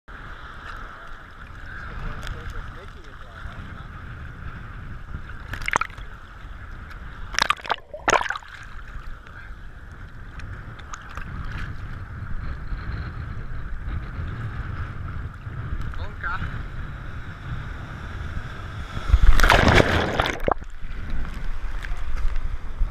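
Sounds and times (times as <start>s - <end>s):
sharp water splashes: 5.4s - 6.1s, 7.3s - 9.0s, 19.1s - 20.9s
water sloshing around camera housing: 5.4s - 6.1s, 7.3s - 9.1s, 19.2s - 21.4s.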